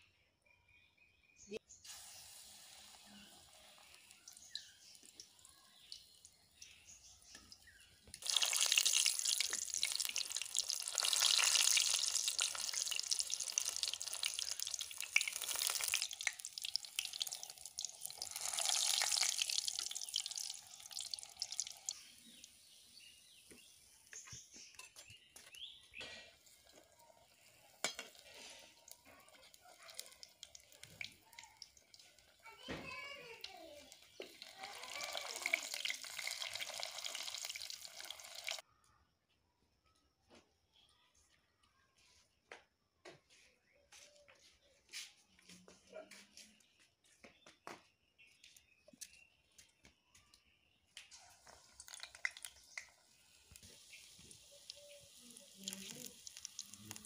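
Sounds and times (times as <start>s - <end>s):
frying in hot oil crackling: 1.8s - 24.4s, 26.1s - 38.6s, 51.0s - 57.0s.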